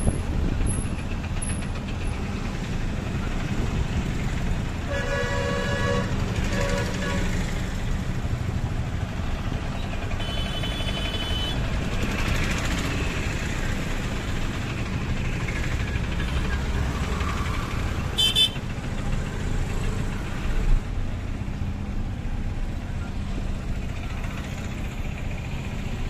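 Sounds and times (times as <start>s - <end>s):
vehicle engine and road rumble: 0.0s - 26.0s
car horn: 4.8s - 7.4s, 10.2s - 11.6s, 18.2s - 18.6s
vehicle horn toot: 4.9s - 7.3s, 10.2s - 11.6s, 18.2s - 18.6s.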